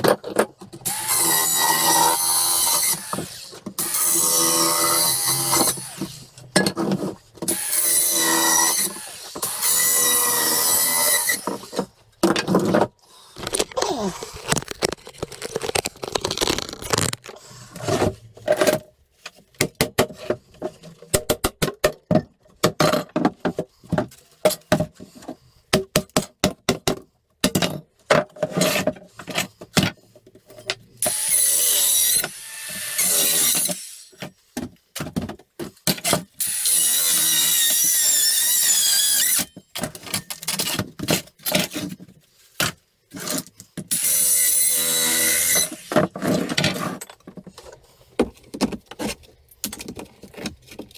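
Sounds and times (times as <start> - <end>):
circular saw cutting wood: 0.8 - 6.3, 7.5 - 11.9, 31.0 - 34.2, 44.0 - 46.0.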